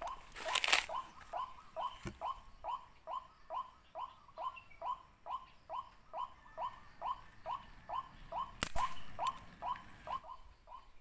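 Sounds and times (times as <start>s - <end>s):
rustling: 0.1s - 1.0s
sharp click: 8.6s - 9.5s.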